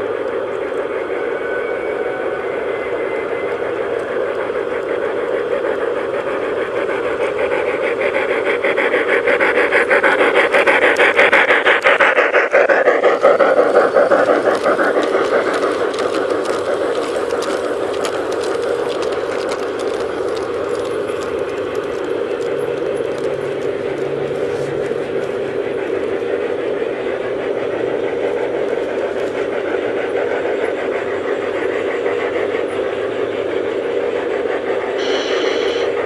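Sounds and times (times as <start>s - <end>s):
model train wheels rumbling on rails: 0.0s - 36.0s
rapid fine clicking: 4.0s - 26.5s.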